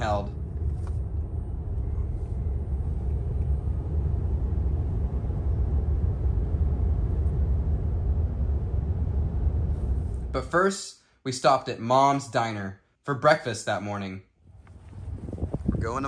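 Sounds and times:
road and tyre rumble: 0:00.0 - 0:10.4.

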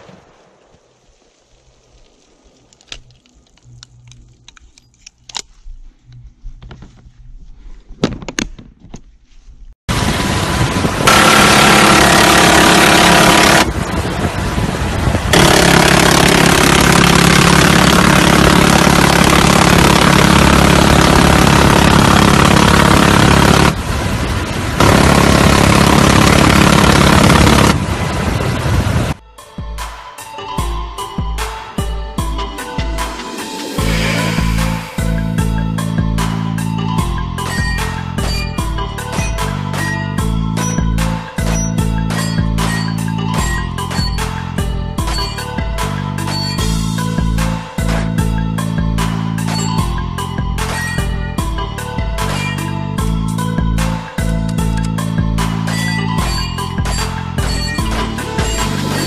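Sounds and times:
helicopter engine and rotor: 0:11.0 - 0:14.0, 0:15.3 - 0:23.8, 0:24.8 - 0:27.8, 0:55.8 - 0:59.0
door gun firing bursts: 0:15.4 - 0:23.8, 0:45.0 - 0:45.5.

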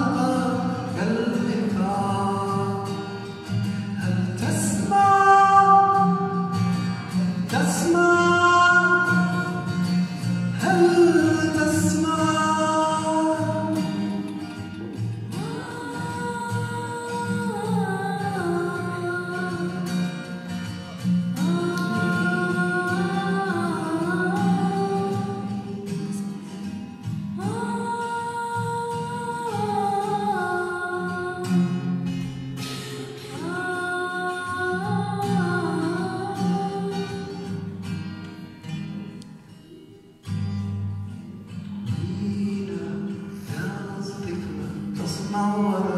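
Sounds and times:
acoustic guitar: 0:00.0 - 0:45.9
plucked string instrument: 0:05.8 - 0:45.9
girl singing long notes: 0:15.4 - 0:20.0, 0:21.4 - 0:26.1, 0:27.4 - 0:31.8, 0:33.1 - 0:37.6.

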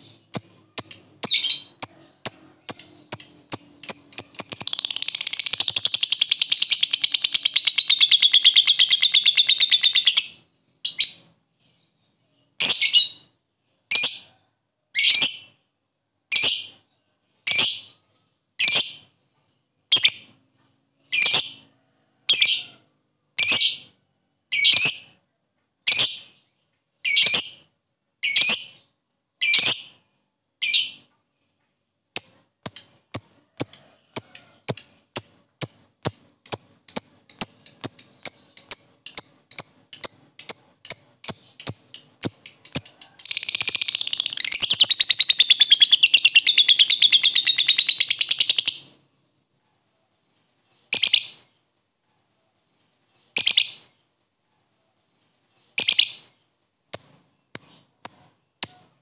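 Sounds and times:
lovebird chirping and trilling: 0:00.0 - 0:11.8, 0:12.6 - 0:13.3, 0:13.9 - 0:14.3, 0:15.0 - 0:15.5, 0:16.3 - 0:16.8, 0:17.5 - 0:18.0, 0:18.6 - 0:19.1, 0:19.9 - 0:20.4, 0:21.0 - 0:21.6, 0:22.3 - 0:22.7, 0:23.4 - 0:25.2, 0:25.8 - 0:26.4, 0:27.0 - 0:28.8, 0:29.4 - 0:30.0, 0:30.6 - 0:31.1, 0:32.2 - 0:49.0, 0:50.9 - 0:51.5, 0:53.4 - 0:53.9, 0:55.8 - 0:59.0.

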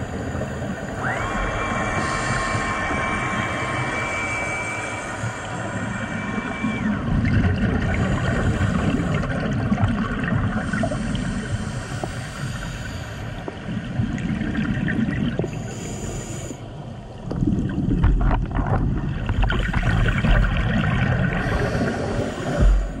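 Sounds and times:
regulator hiss: 0:00.0 - 0:07.1, 0:10.6 - 0:13.4
underwater bubbles gurgling: 0:00.0 - 0:23.0.

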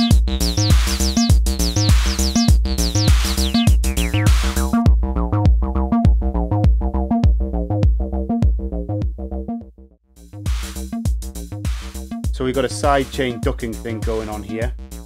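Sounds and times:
kick drum beat: 0:00.0 - 0:09.3, 0:10.4 - 0:15.0
filtered synth bass line: 0:00.0 - 0:15.0.

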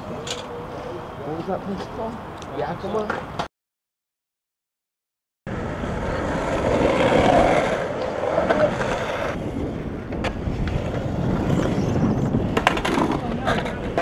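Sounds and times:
skateboard wheels rolling on concrete: 0:05.5 - 0:14.0.

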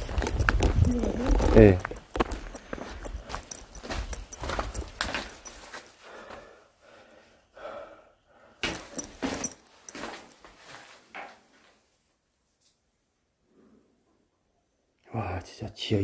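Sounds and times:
footsteps going down stairs: 0:00.0 - 0:06.6, 0:08.6 - 0:10.9.

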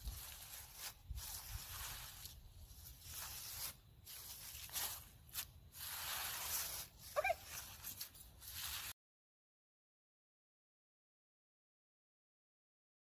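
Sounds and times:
dry leaves crunching underfoot: 0:00.0 - 0:09.0.

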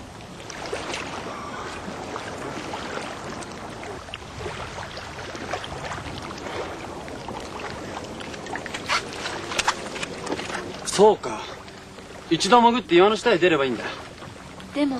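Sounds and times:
small waves lapping against rocks: 0:00.0 - 0:14.9.

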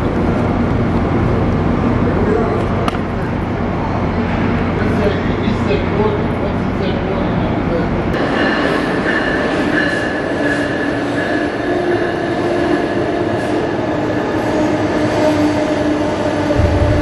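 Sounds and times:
train rumbling: 0:00.0 - 0:17.0
locomotive whine: 0:16.0 - 0:17.0.

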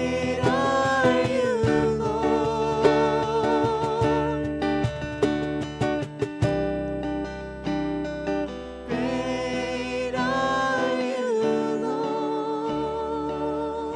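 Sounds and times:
woman singing with vibrato: 0:00.0 - 0:04.6, 0:08.9 - 0:13.9
acoustic guitar strumming: 0:00.0 - 0:13.9.

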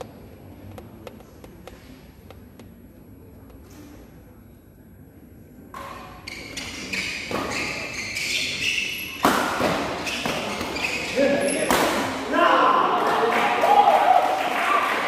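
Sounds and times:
rackets hitting shuttlecock: 0:09.2 - 0:10.9.

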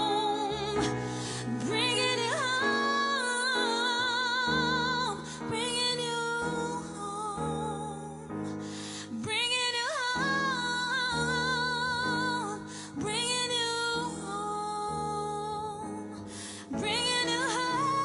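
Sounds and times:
woman singing with vibrato: 0:00.0 - 0:08.2, 0:16.7 - 0:18.0
keyboard piano chords: 0:00.0 - 0:18.0
singer breathing: 0:00.8 - 0:01.6, 0:08.5 - 0:09.2, 0:16.2 - 0:16.8.

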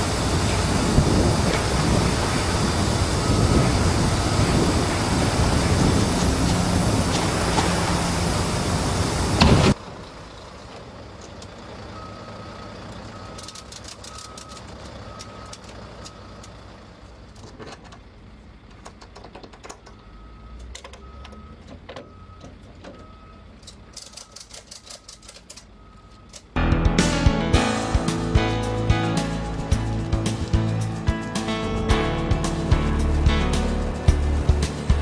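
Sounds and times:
loud rushing noise: 0:00.0 - 0:09.8, 0:27.0 - 0:35.0
diesel engine idling: 0:00.0 - 0:17.4, 0:25.6 - 0:35.0.

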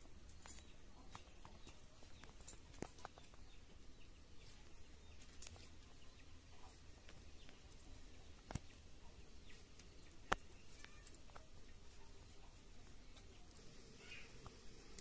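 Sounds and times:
small sharp clicks and taps: 0:08.4 - 0:08.8, 0:09.7 - 0:11.5.

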